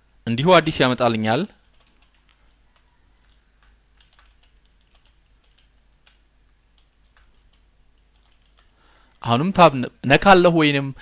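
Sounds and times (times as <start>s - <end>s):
faint keyboard typing: 1.5s - 9.3s.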